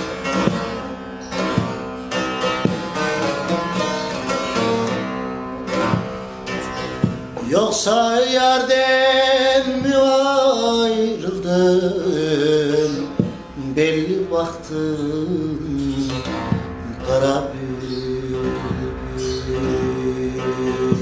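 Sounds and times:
plucked long-necked lute: 0:00.0 - 0:07.9, 0:08.6 - 0:21.0
man singing folk song: 0:07.2 - 0:21.0.

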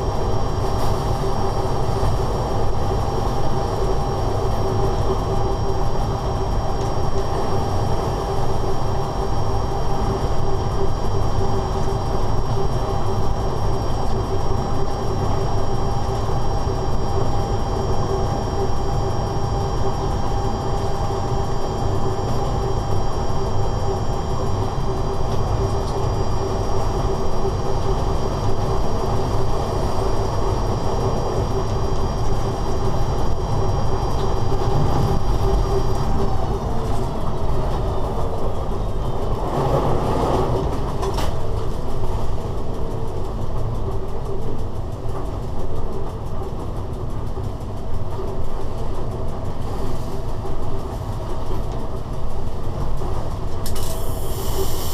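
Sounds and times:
constant hum: 0:00.0 - 0:54.9
train running gear rumble: 0:00.0 - 0:54.9
faint high whine: 0:53.6 - 0:54.9.

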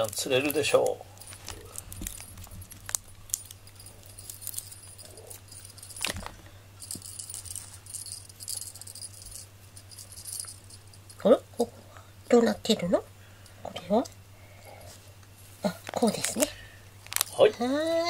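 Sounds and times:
toy jingling when shaken: 0:00.0 - 0:11.3.

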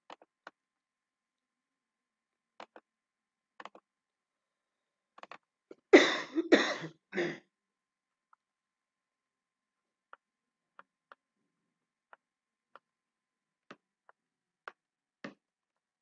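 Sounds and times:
computer mouse clicks: 0:00.0 - 0:00.6, 0:02.6 - 0:02.8, 0:03.6 - 0:03.8, 0:05.2 - 0:05.4
man coughing: 0:05.9 - 0:07.4.

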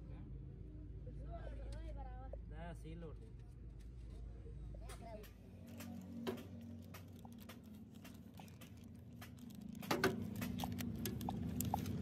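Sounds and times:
plastic bag crinkling: 0:06.0 - 0:12.0.

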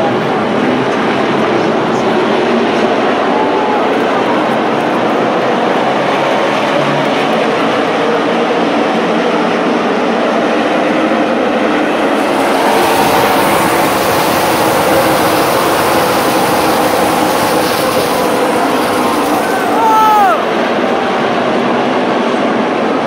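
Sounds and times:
race car engines roaring: 0:00.0 - 0:23.0.

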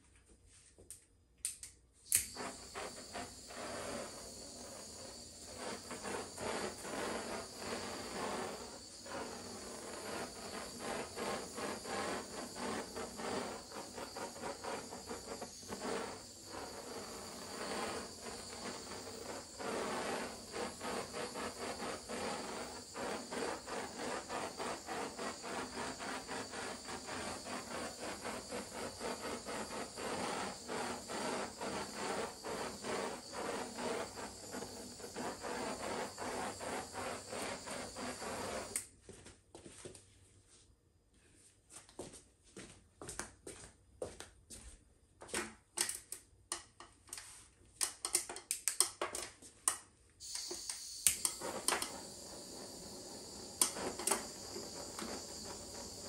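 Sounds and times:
heat tool hissing and fluttering: 0:02.1 - 0:38.8, 0:50.2 - 0:56.0.

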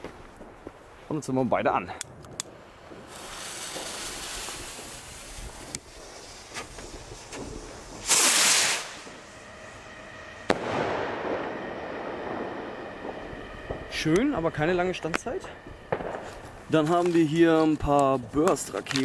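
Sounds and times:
rocket launch hiss: 0:02.5 - 0:14.1.

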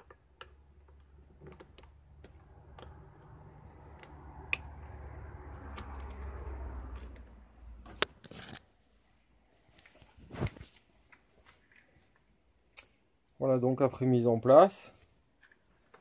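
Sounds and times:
metal lock rubbing and scraping: 0:08.0 - 0:08.7.

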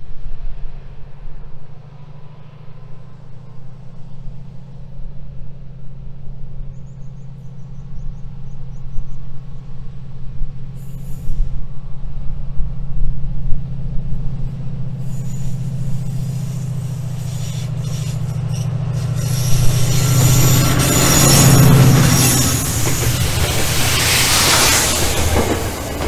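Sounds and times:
diesel locomotive engine drone: 0:00.0 - 0:26.0
brief hiss: 0:15.0 - 0:26.0.

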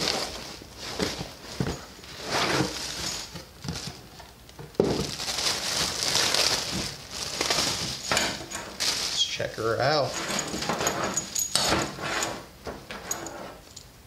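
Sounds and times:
plastic bag crinkling: 0:00.0 - 0:10.5.

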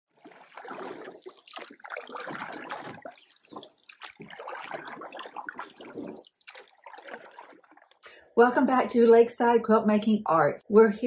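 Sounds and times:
water trickling and splashing: 0:00.1 - 0:08.1.

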